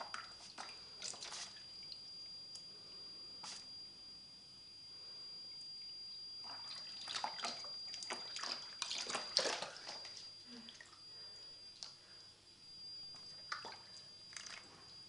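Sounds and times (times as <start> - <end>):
animal splashing in water: 6.4 - 10.2, 13.5 - 14.7.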